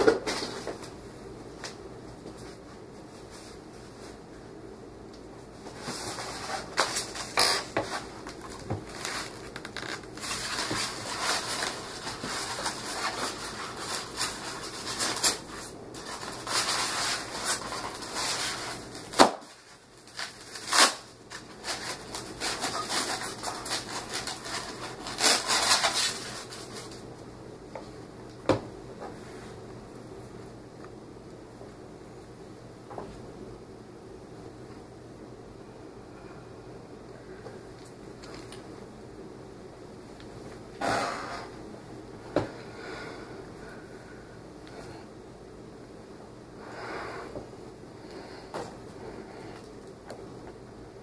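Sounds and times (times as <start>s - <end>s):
packaging rustling: 5.6s - 27.0s.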